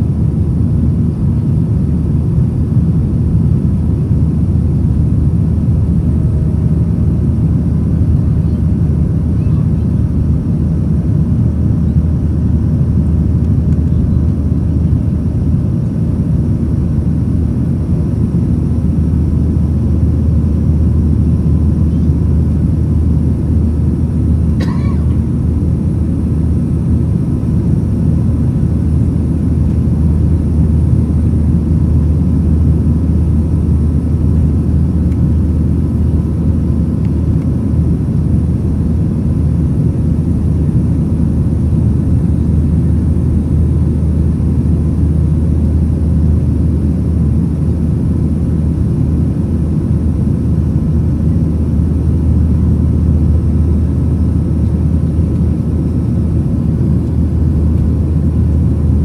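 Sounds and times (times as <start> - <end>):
faint steady whine tones: 0.0 - 59.0
jet engines rumbling: 0.0 - 59.0.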